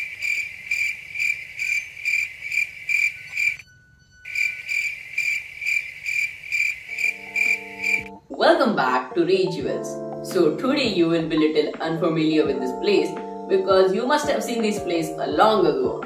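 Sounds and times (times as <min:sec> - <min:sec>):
crickets chirping: 0:00.0 - 0:08.2
low held musical tone: 0:03.2 - 0:04.7.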